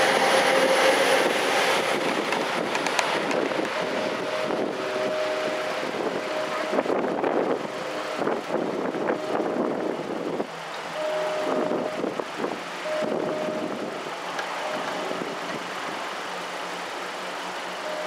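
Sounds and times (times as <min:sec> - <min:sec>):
street traffic: 0:00.0 - 0:18.0
crossing bell ringing: 0:02.6 - 0:10.0, 0:10.8 - 0:15.4, 0:17.8 - 0:18.0.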